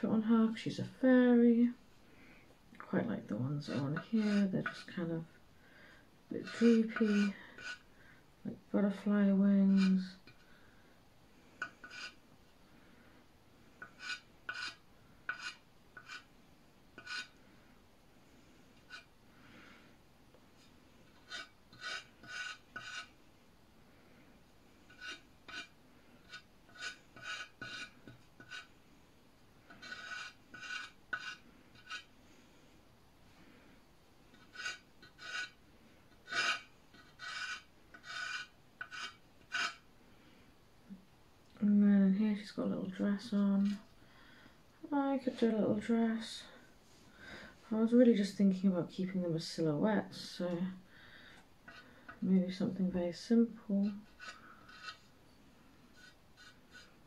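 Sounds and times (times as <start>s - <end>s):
chalk scratching on a clay pot: 3.6s - 5.1s, 6.4s - 7.9s, 9.6s - 10.4s, 11.6s - 12.2s, 13.8s - 16.3s, 17.0s - 17.4s, 18.9s - 19.1s, 21.1s - 23.2s, 24.9s - 28.7s, 29.7s - 32.1s, 34.3s - 35.6s, 36.2s - 39.8s, 53.8s - 55.1s, 55.9s - 57.0s.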